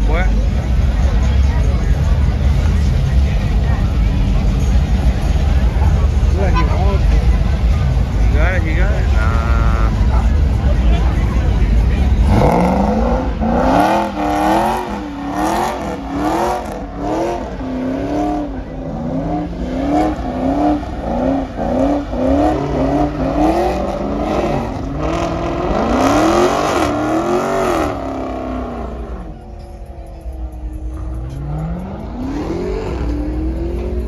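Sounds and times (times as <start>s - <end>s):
car engine revving hard: 9.0s - 29.4s, 30.9s - 34.0s.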